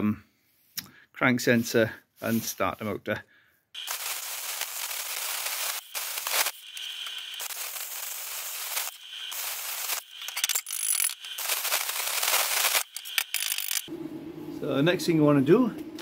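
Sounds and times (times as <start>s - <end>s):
plasma cutter hissing crackle: 3.8s - 13.9s.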